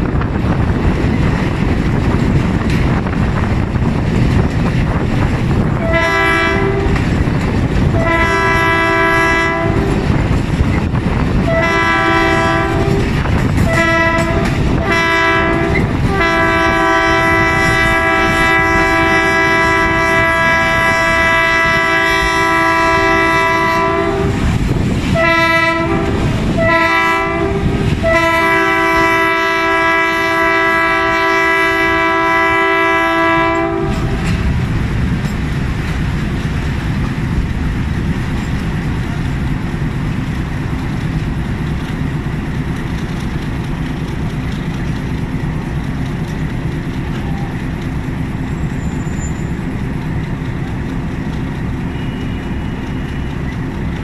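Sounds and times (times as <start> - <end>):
locomotive engine rumble: 0.0 - 54.0
train wheels clattering on rails: 0.0 - 54.0
locomotive horn blasts: 5.8 - 7.1, 7.9 - 10.2, 11.4 - 24.5, 25.1 - 34.4, 51.9 - 53.3.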